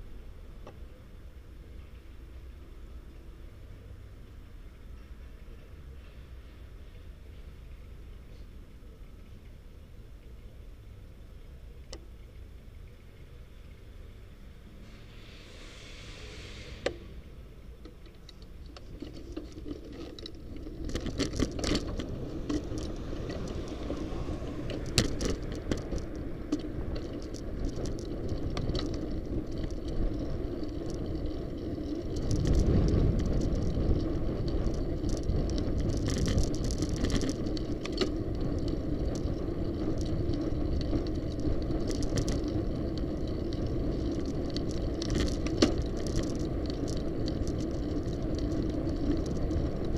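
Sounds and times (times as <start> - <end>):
bicycle road noise hum: 0.0 - 49.9
low rumble: 12.2 - 49.9
bicycle rattles and clicks: 17.7 - 49.9.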